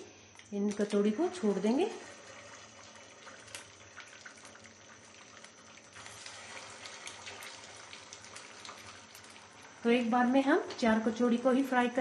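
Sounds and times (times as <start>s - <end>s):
pastries sizzling in hot oil: 0.8s - 12.0s.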